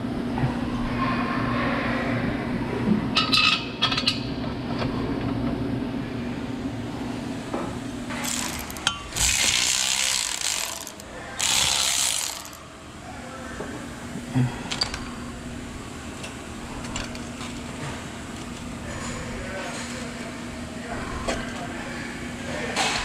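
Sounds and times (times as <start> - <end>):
ratchet wrench clicking: 8.1 - 12.6.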